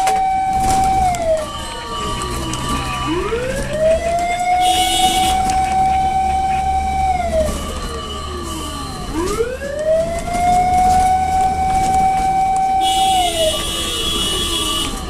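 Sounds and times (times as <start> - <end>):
fire truck siren wailing: 0.0 - 15.0
low engine rumble: 0.9 - 12.4.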